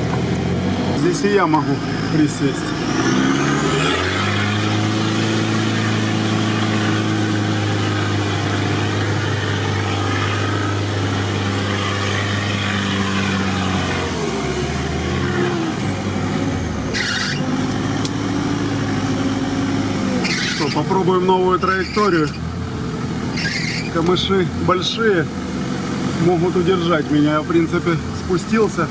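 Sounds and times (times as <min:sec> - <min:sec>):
off-road vehicle engine running: 0:00.0 - 0:28.9.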